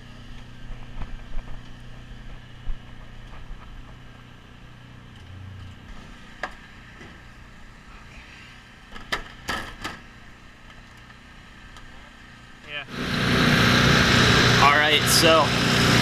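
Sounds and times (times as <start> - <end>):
low engine hum: 0.0 - 8.9.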